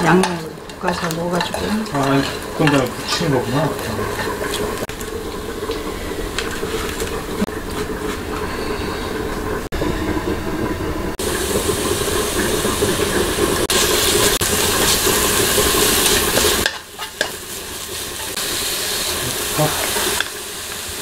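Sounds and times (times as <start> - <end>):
wooden spoon stirring: 0.0 - 8.4, 13.7 - 18.4
oil and garlic sizzling: 0.0 - 21.0.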